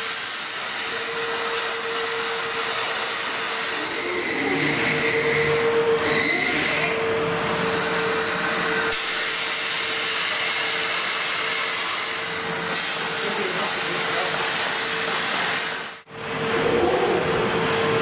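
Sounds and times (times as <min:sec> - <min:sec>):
welding machine hiss: 0:00.0 - 0:04.2, 0:07.4 - 0:16.1.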